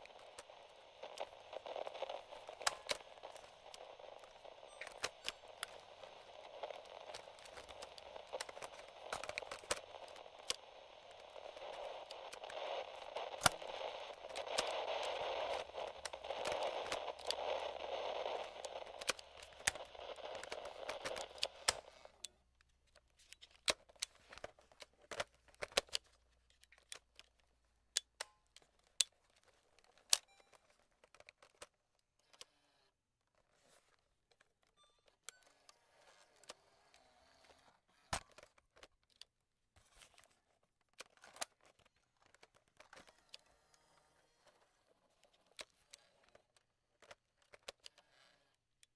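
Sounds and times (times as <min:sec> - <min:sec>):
radio static crackle: 0:00.0 - 0:22.1.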